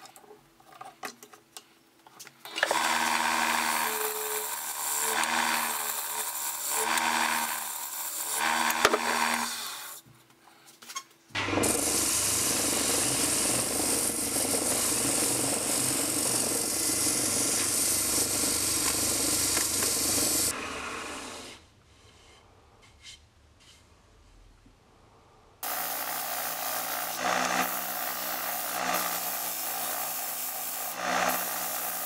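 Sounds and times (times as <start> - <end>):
lathe gouge cutting wood: 2.6 - 10.0, 11.4 - 21.5, 25.6 - 32.0
sanding pad hissing on spinning wood: 11.6 - 21.6, 25.6 - 32.0.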